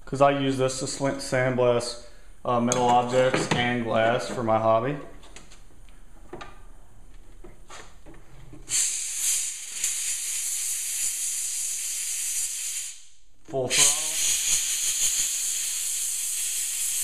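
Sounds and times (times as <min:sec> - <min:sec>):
sandblaster hissing: 0:08.7 - 0:13.1, 0:13.7 - 0:17.0.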